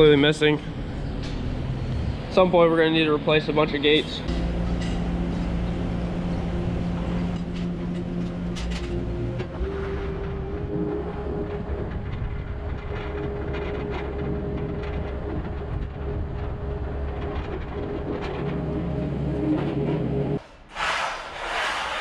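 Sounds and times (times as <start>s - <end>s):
diesel engine running: 0.0s - 20.4s
forks and frame rattling: 4.3s - 9.5s.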